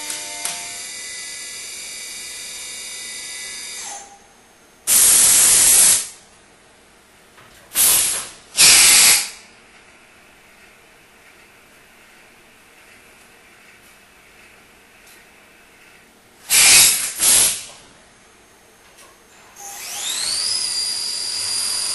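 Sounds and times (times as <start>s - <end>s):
compressed air hisses: 16.5s - 17.7s
milling machine spindle whining: 19.6s - 21.9s.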